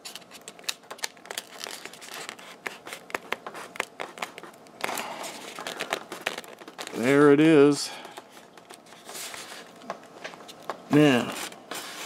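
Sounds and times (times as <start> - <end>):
foam creaking and clicking: 0.0 - 11.2
foam rubbing: 11.1 - 12.0.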